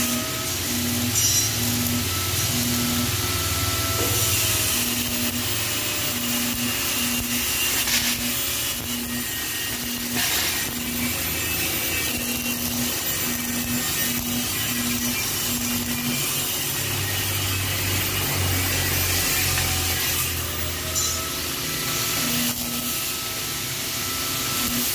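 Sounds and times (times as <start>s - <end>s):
welding arc crackling and hissing: 0.0s - 24.9s.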